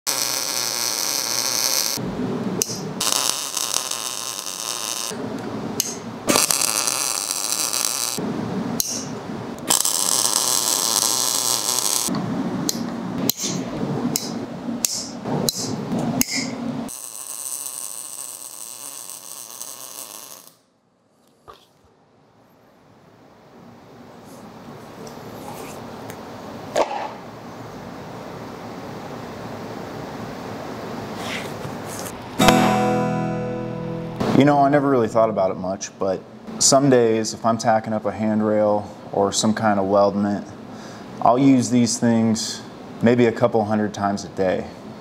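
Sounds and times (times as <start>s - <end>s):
welder arc crackling and sizzling: 0.0s - 5.2s, 5.8s - 8.2s, 8.8s - 12.1s, 16.9s - 20.6s.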